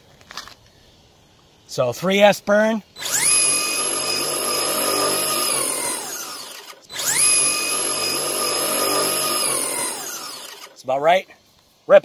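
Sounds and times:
electric motor and gears whining: 3.0 - 10.8.

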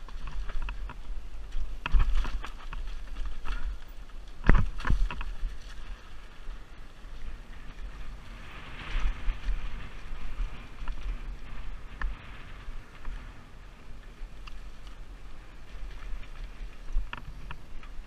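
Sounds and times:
bike knocking on rocks: 0.0 - 6.1
wind noise on microphone: 0.0 - 18.0.

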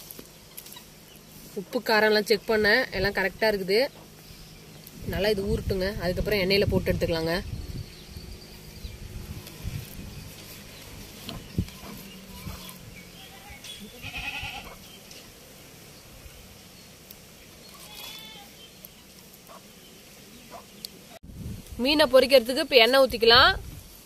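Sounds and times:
livestock bleating: 12.2 - 14.8, 17.7 - 18.6.

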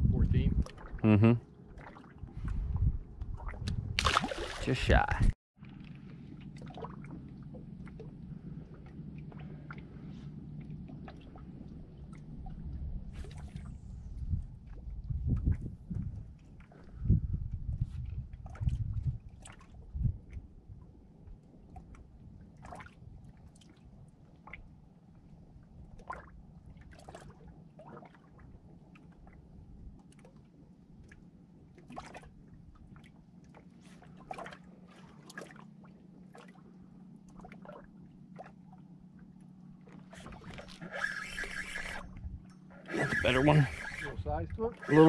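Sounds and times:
steady low hum: 0.0 - 27.8, 28.4 - 45.0
water lapping and gurgling: 0.0 - 45.0.

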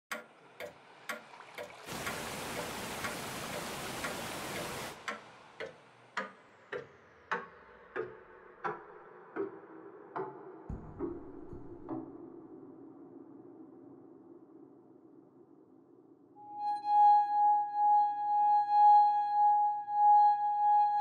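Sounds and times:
clock ticking: 0.1 - 10.5.

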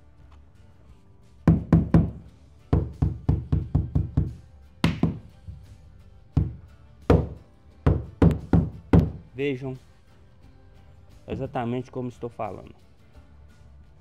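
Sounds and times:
floor plank being knocked: 1.5 - 2.2, 2.8 - 5.6, 6.4 - 9.2.

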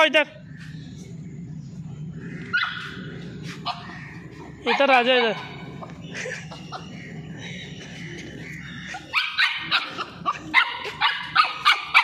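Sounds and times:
dog barking: 9.1 - 12.0.

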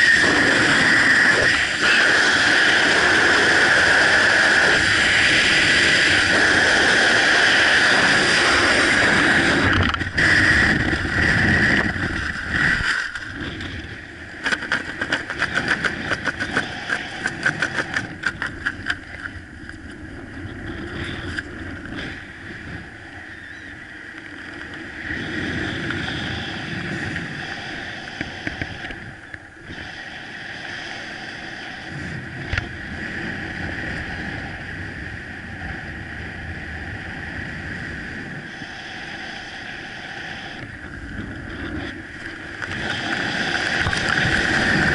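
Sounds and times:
wind rushing over microphone: 0.0 - 44.9.

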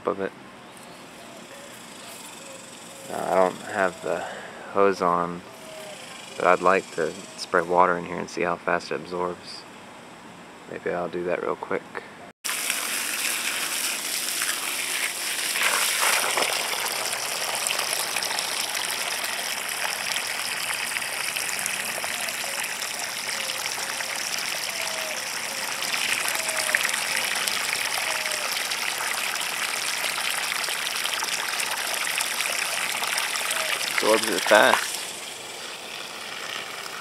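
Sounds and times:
garden hose spraying water: 12.5 - 37.0
water splashing in a hole: 12.5 - 37.0.

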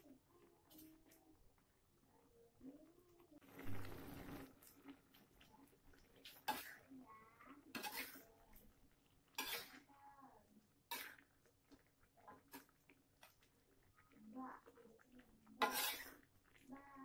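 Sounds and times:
metal spatula scraping a wok: 6.3 - 6.8, 7.7 - 8.3, 9.4 - 9.9, 10.9 - 11.2, 15.6 - 16.2.

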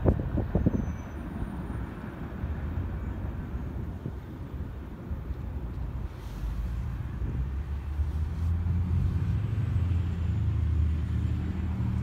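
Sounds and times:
bus diesel engine running: 0.0 - 12.0.

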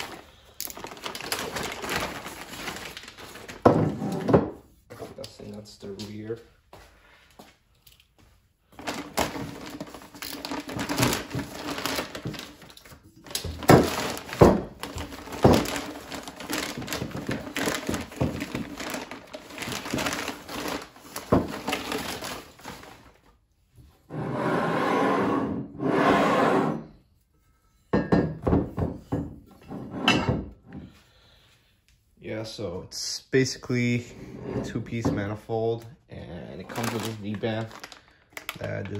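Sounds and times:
plastic bag crinkling and tearing: 0.0 - 3.7, 8.8 - 23.3, 36.4 - 38.9.

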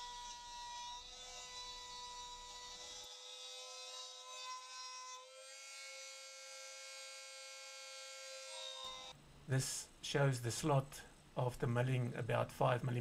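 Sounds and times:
rotary tool high whine: 0.0 - 9.2.

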